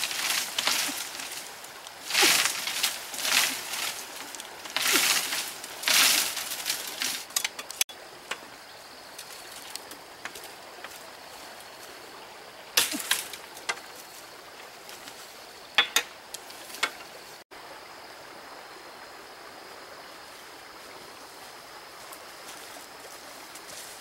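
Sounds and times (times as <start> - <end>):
stream rushing: 0.0 - 23.6
bamboo pole knocking: 15.8 - 16.1.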